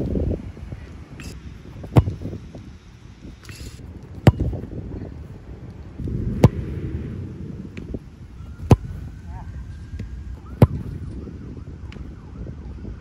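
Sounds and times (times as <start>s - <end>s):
soccer ball kicked hard: 1.8s - 2.4s, 4.2s - 4.7s, 6.0s - 6.9s, 8.6s - 9.1s, 10.5s - 11.2s.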